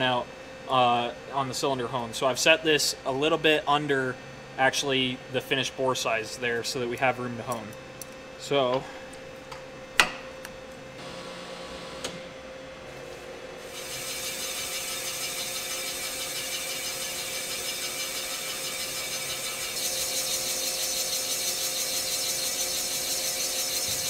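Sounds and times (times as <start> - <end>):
steady machine hum: 0.0 - 24.0
boring bar cutting metal: 13.6 - 24.0.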